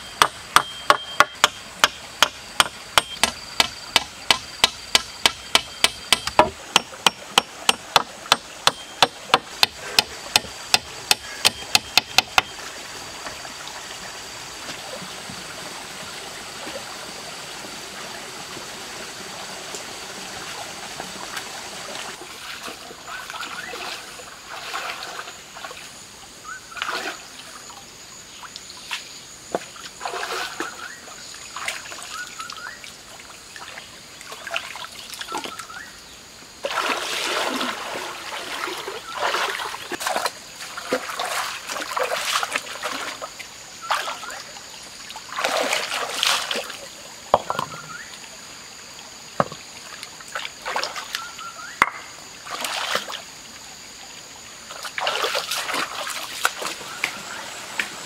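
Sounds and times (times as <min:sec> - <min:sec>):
stream trickling: 0:00.0 - 0:58.0
water splashing from wading: 0:12.4 - 0:26.0, 0:26.7 - 0:27.8, 0:29.7 - 0:35.8, 0:36.6 - 0:48.4, 0:49.6 - 0:53.6, 0:54.6 - 0:58.0.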